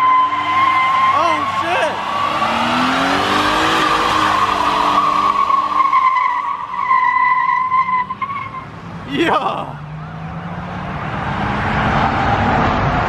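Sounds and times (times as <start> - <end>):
truck engine revving: 0.4 - 6.6.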